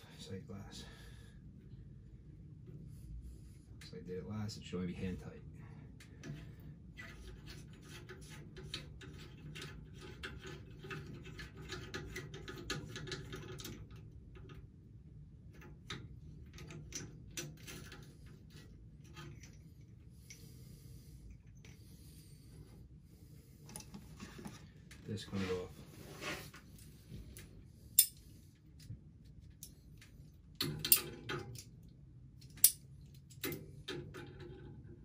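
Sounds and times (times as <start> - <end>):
low steady hum: 0.0 - 35.0
metallic clicks and scraping: 6.0 - 14.7, 15.5 - 22.7, 23.6 - 35.0.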